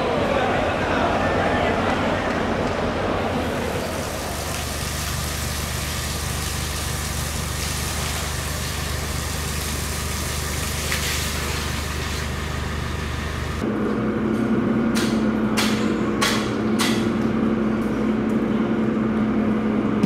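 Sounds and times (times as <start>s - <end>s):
low engine hum: 0.0s - 20.0s
hose spraying water on wood: 3.4s - 13.6s.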